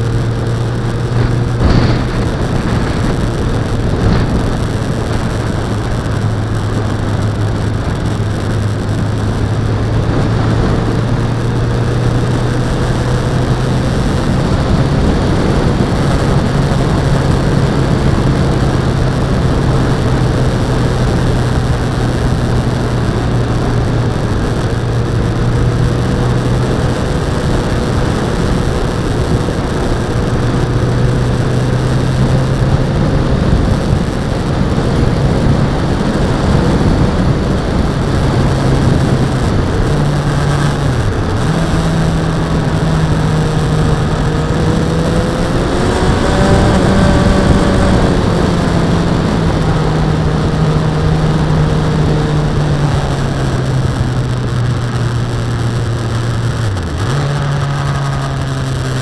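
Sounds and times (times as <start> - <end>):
higher engine tone: 0.0 - 59.0
motorcycle engine running: 0.0 - 59.0
wind and road noise: 0.0 - 59.0.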